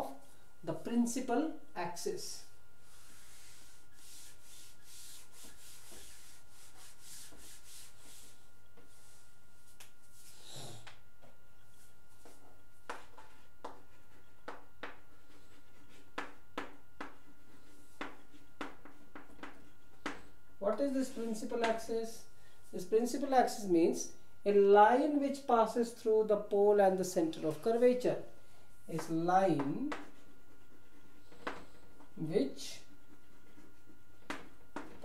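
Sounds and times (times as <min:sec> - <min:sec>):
duster rubbing on chalkboard: 0:02.8 - 0:10.6, 0:29.9 - 0:31.8, 0:32.7 - 0:34.9
chalk tapping and scratching on board: 0:02.9 - 0:09.9, 0:12.2 - 0:20.3, 0:28.9 - 0:31.8, 0:32.8 - 0:35.0.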